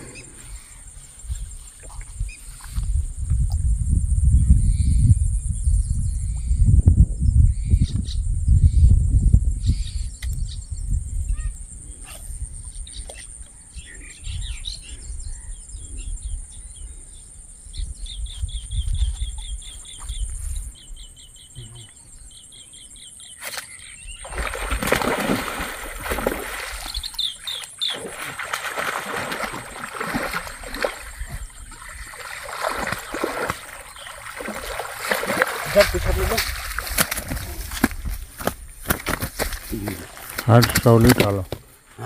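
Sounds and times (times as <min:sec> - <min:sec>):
low wind rumble: 0:00.0 - 0:13.0
bird chirping: 0:12.6 - 0:24.5, 0:26.8 - 0:28.1
fish splashing in water: 0:24.2 - 0:38.1.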